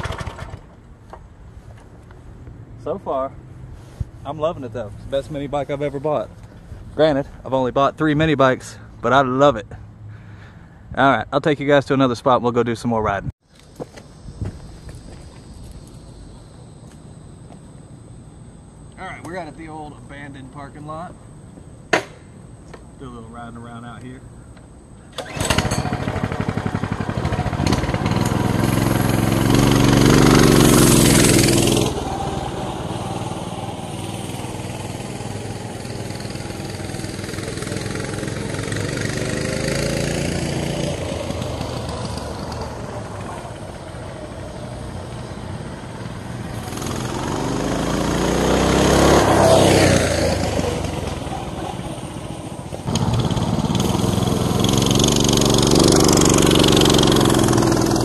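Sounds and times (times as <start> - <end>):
mini bike engine revving: 0.0 - 0.7, 25.2 - 58.0.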